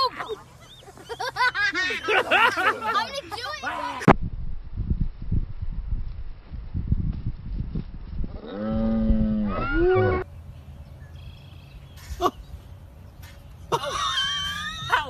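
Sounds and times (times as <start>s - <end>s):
wind rumbling on microphone: 4.1s - 11.1s
short rising cry: 9.3s - 10.2s.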